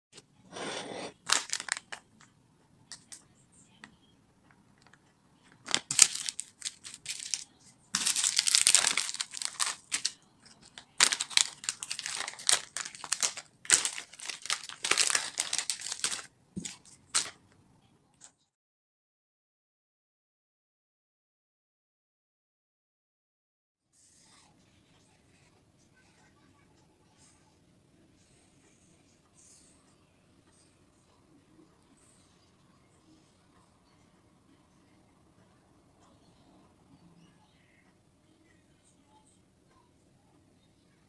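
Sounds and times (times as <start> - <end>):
plastic packets crinkling: 1.2 - 2.0, 5.6 - 17.4.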